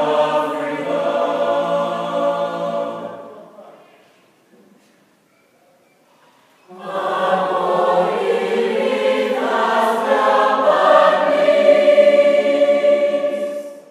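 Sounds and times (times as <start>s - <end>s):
choir singing a chord: 0.0s - 3.7s, 6.7s - 13.9s.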